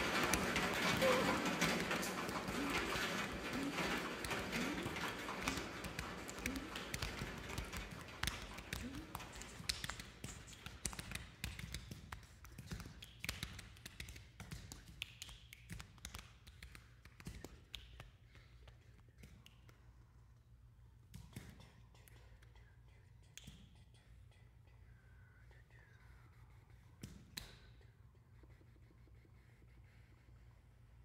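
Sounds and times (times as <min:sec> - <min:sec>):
vocal mouth clicks and taps: 0:21.1 - 0:25.0
breathy whispered sounds: 0:21.6 - 0:27.1.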